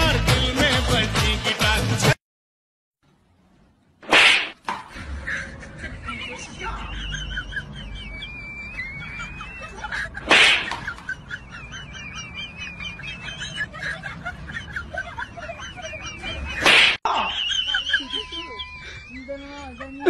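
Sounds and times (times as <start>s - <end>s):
birds chirping and warbling: 17.3s - 20.0s.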